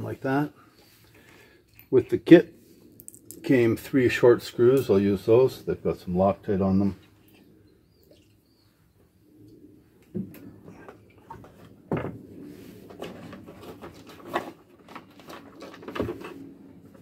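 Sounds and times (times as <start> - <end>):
rustling and scraping: 10.0 - 17.0.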